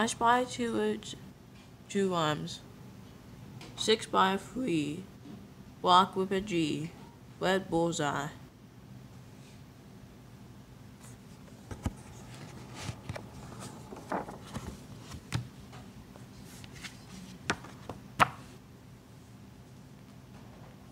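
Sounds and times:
paper rustling: 11.0 - 15.6, 16.2 - 18.4.

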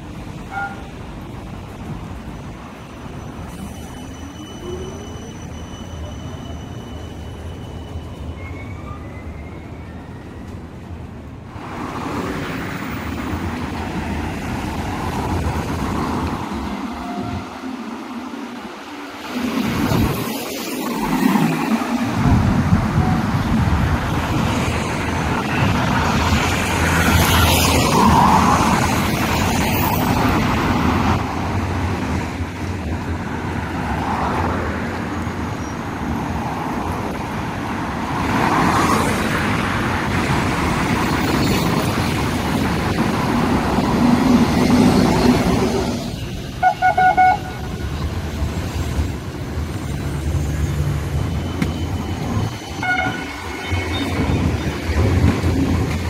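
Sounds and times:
cars passing on city road: 0.0 - 56.0
car horn toots: 46.6 - 47.7, 52.8 - 53.8.

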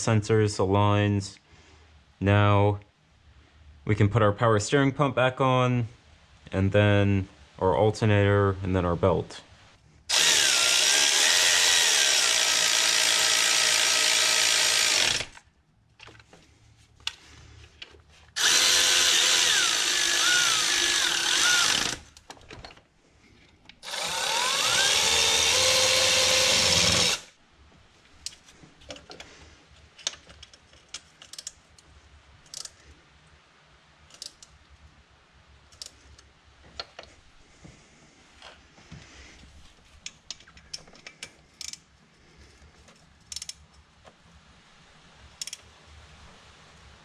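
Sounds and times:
power drill driving bolts: 10.1 - 15.4, 18.4 - 22.8, 23.8 - 27.3.

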